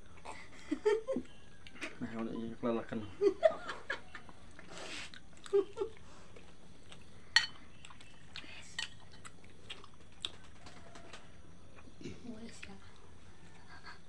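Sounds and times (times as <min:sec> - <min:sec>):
metal spoon clinking on a plate: 0:07.4 - 0:07.6.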